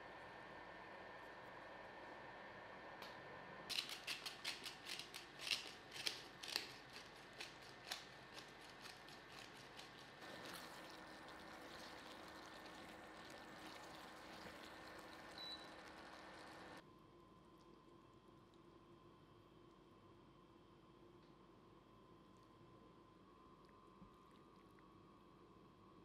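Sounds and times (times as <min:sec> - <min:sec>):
faint hum: 0:00.0 - 0:26.0
pepper grinder crunching clicks: 0:03.7 - 0:10.2.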